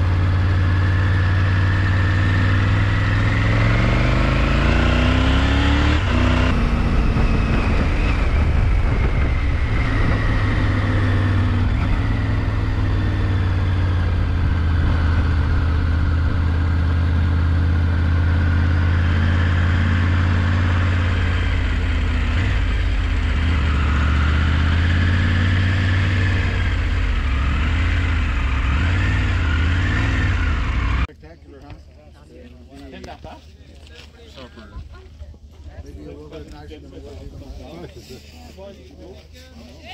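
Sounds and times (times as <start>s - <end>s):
motorcycle engine running: 0.0s - 31.1s
road noise: 0.0s - 39.9s
wind noise: 5.6s - 16.9s.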